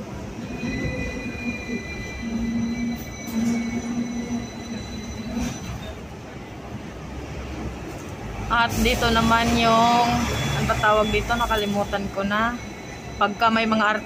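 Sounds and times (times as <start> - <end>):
tram rumbling on rails: 0.0 - 14.0
wheels squealing on track: 0.4 - 6.0.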